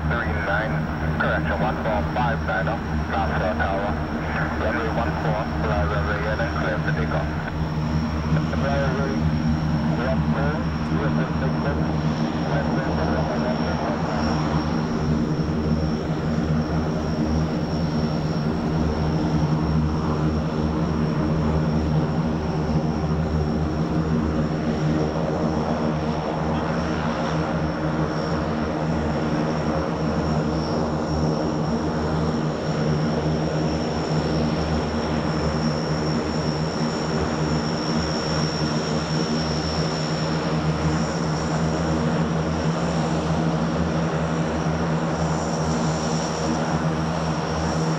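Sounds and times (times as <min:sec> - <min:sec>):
high turbine whine: 0:00.0 - 0:47.9
propeller drone: 0:00.0 - 0:47.9.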